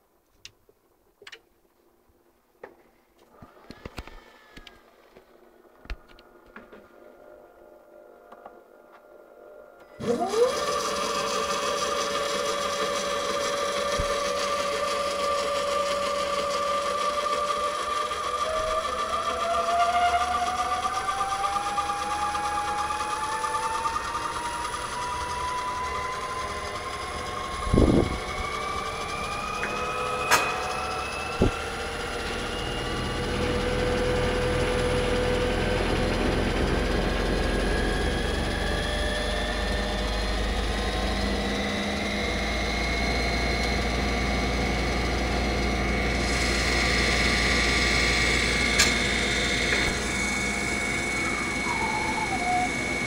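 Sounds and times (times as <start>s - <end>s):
motor whine rising in pitch: 3.6s - 53.0s
low hum: 23.8s - 53.0s.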